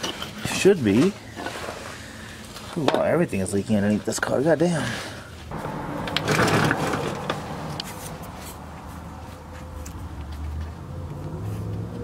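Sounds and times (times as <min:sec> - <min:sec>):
rustling scrape: 0:00.0 - 0:02.9, 0:04.8 - 0:10.1
low steady rumble: 0:05.5 - 0:10.3.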